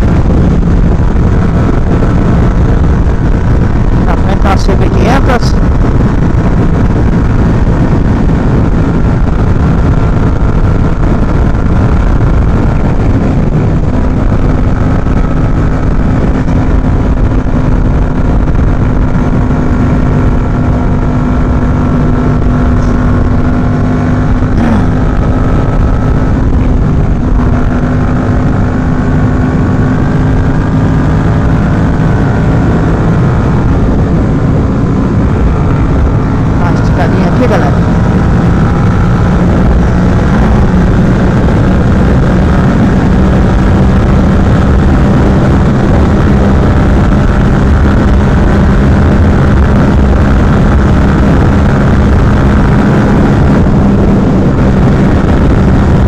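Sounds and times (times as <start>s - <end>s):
motorcycle engine droning: 0.0s - 56.0s
wind rush on microphone: 0.0s - 56.0s.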